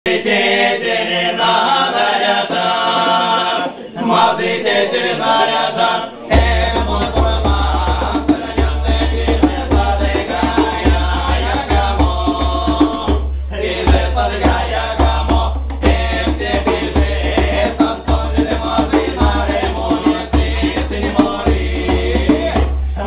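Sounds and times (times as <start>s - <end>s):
men singing folk song: 0.1s - 23.0s
hand drum beating: 6.3s - 23.0s.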